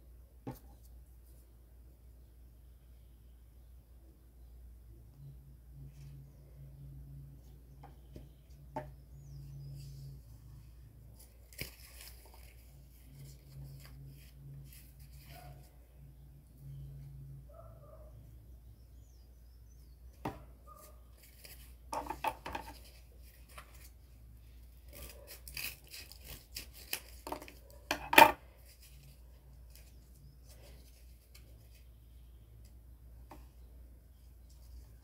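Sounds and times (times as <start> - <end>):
cardboard taps and scrapes: 0.5 - 0.8.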